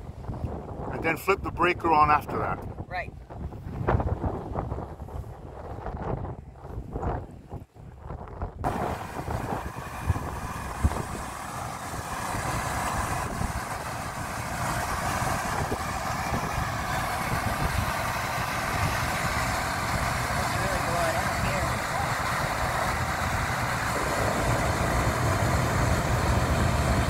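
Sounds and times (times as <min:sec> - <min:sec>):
air conditioner fan running: 0:08.6 - 0:27.0.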